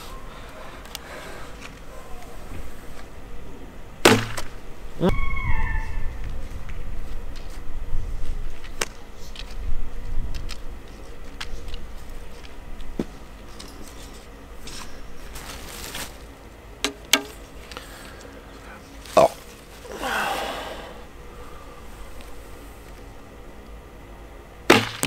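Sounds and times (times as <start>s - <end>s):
short rustling scrape: 13.8s - 16.3s.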